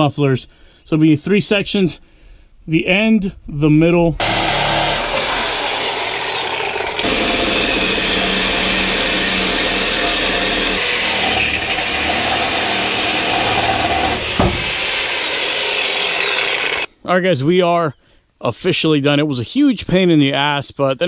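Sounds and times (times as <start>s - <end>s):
reciprocating saw cutting metal pipe: 4.2s - 16.9s
sharp knock: 14.3s - 14.8s.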